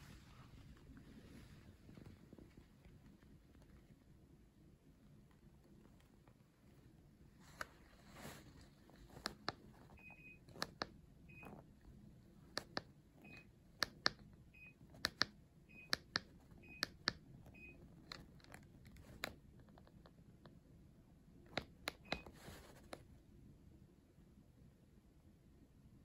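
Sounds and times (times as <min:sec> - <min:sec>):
remote control buttons clicking: 0:09.0 - 0:11.6, 0:12.2 - 0:20.1, 0:21.5 - 0:23.0.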